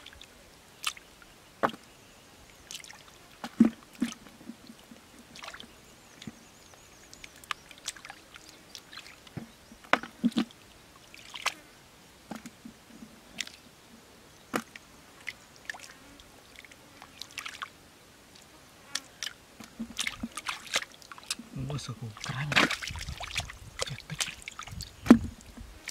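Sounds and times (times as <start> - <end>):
hands splashing in muddy water: 11.2 - 11.6, 19.2 - 21.5, 22.2 - 25.9.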